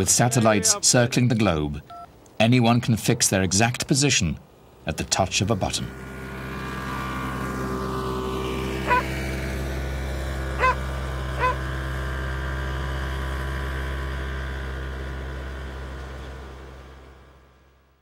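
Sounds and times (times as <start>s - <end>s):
snowmobile engine drone: 5.0s - 18.0s.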